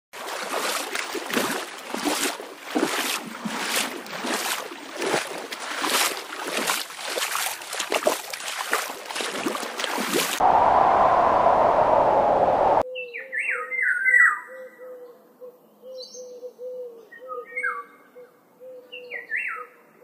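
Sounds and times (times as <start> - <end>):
water sloshing and lapping: 0.1 - 10.4.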